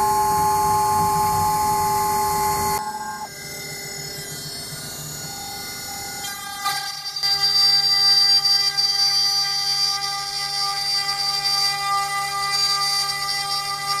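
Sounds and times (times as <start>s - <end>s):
quiet machine hum: 0.0s - 7.5s
router spindle whine: 0.0s - 14.0s.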